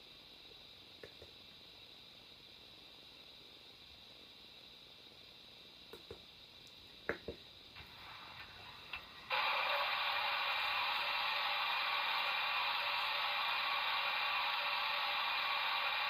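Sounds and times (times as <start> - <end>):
steam hiss from speaker: 7.8 - 16.0.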